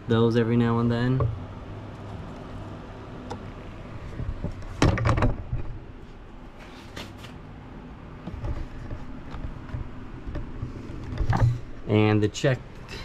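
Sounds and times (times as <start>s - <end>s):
low steady hum: 0.0s - 13.0s
handling knocks and clicks: 8.2s - 11.6s.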